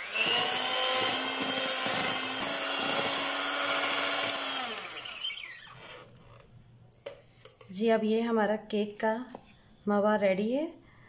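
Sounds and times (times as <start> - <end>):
electric hand mixer whining: 0.0 - 6.1.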